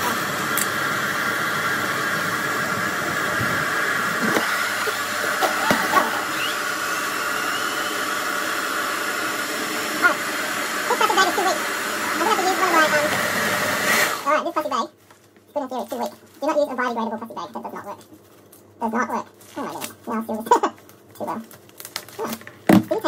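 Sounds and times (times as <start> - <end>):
hair dryer running: 0.0 - 14.4.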